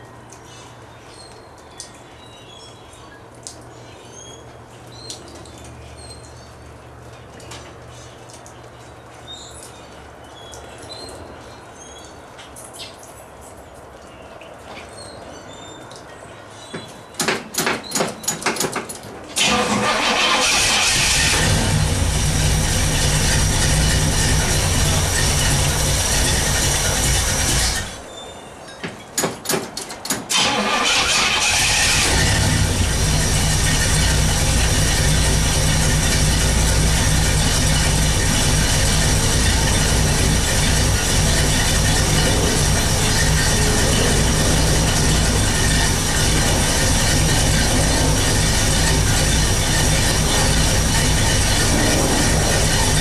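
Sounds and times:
engine cranking: 0:18.2 - 0:28.0, 0:29.8 - 0:53.0
car engine running loud: 0:19.4 - 0:28.0, 0:30.3 - 0:53.0
steady low hum: 0:32.0 - 0:53.0.

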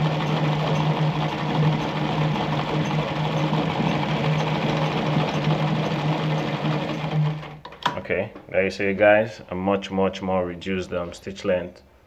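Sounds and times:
sewing machine running: 0:00.0 - 0:07.7.

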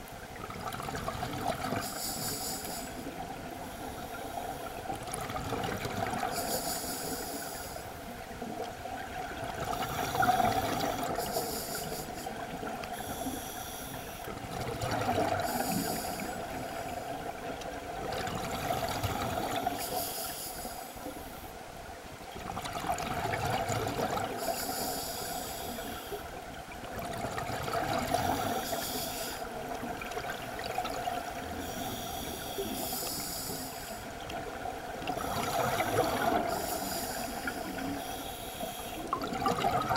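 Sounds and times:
exhaled bubbles rumbling underwater: 0:00.0 - 0:13.5, 0:14.2 - 0:20.1, 0:21.8 - 0:39.9
scuba regulator hissing inhale: 0:01.8 - 0:04.9, 0:06.2 - 0:08.2, 0:09.7 - 0:14.3, 0:15.3 - 0:17.1, 0:18.5 - 0:21.5, 0:24.2 - 0:26.4, 0:28.2 - 0:29.6, 0:31.2 - 0:34.2, 0:35.1 - 0:39.2.

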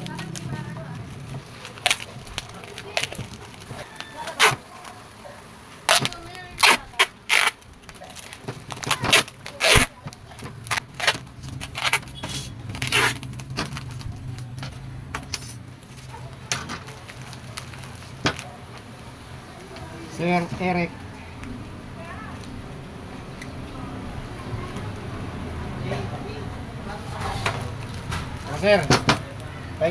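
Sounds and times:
packing tape ripping off roll: 0:00.0 - 0:05.0, 0:05.8 - 0:14.6
plastic wrap crinkling: 0:00.0 - 0:20.5.

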